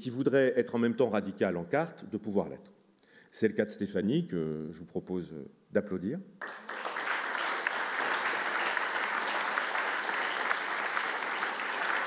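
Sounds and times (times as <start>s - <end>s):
audience applauding: 6.4s - 12.0s.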